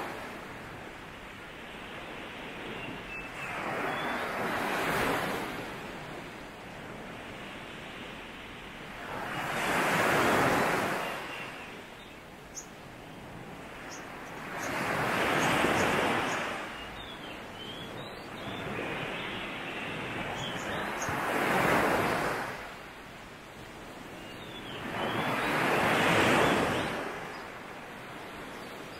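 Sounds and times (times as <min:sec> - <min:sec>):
sea waves breaking on beach: 0:00.0 - 0:28.9
faint high bird chirps: 0:02.6 - 0:04.4, 0:11.0 - 0:13.2, 0:13.8 - 0:21.2, 0:24.2 - 0:27.5.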